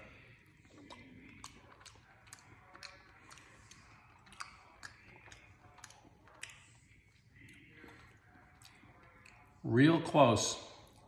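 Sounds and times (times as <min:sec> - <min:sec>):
wet mouth clicks of chewing: 0:00.0 - 0:09.6.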